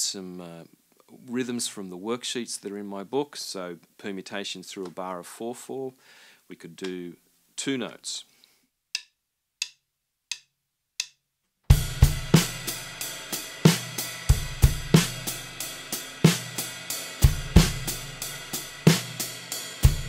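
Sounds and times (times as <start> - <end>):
drum kit playing: 11.7 - 20.0.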